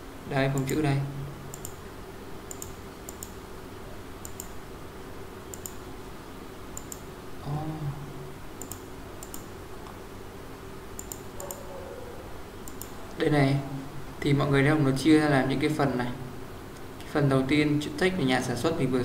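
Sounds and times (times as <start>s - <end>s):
steady low hum: 0.0s - 19.0s
computer mouse clicking: 0.5s - 0.8s, 1.5s - 1.8s, 2.5s - 3.4s, 4.2s - 4.6s, 5.5s - 5.8s, 6.8s - 7.1s, 8.6s - 10.0s, 11.0s - 11.7s, 12.6s - 13.1s.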